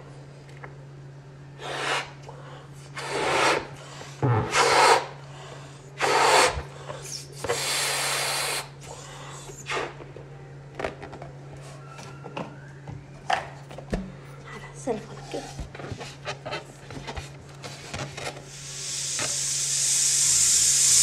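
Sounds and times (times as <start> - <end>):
steady low hum: 0.0 - 21.0
breathy blows into balloon: 18.5 - 21.0.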